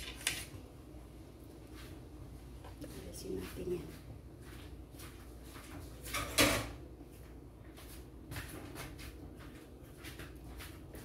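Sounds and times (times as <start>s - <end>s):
kitchen things knocking and rustling: 5.6s - 6.9s.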